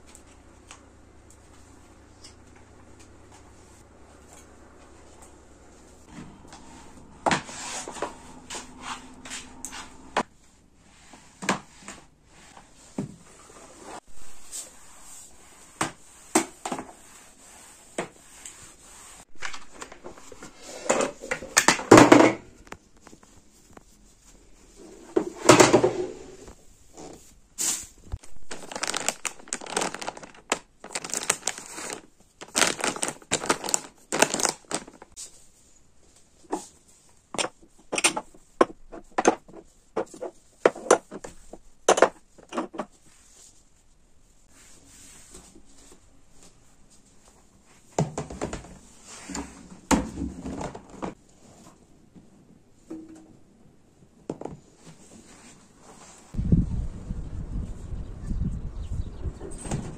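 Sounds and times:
mop pushed across floor: 3.2s - 21.5s
plastic packet rustling: 28.2s - 35.2s.

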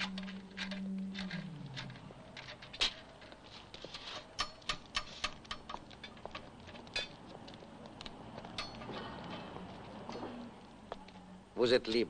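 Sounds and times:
hand tools clinking on metal: 0.0s - 10.4s.

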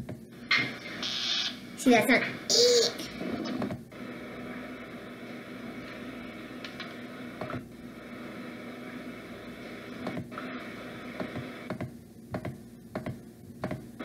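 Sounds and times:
speaker hiss with low hum: 0.0s - 14.0s
angry hamster sounds: 1.8s - 3.5s.

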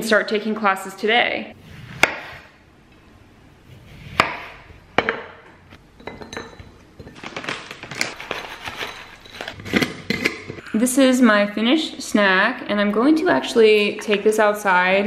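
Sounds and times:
knife striking cutting board: 4.1s - 5.3s.

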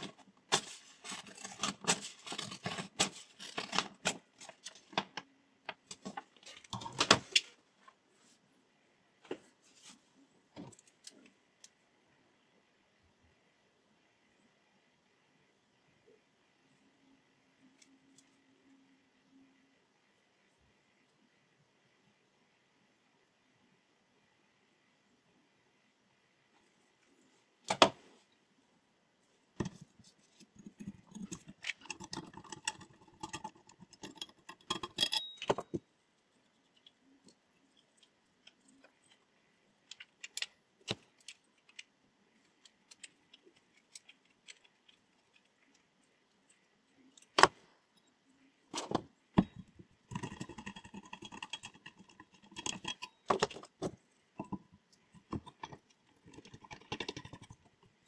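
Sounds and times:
small metal objects clicking and rattling: 30.6s - 35.8s, 49.4s - 57.8s.

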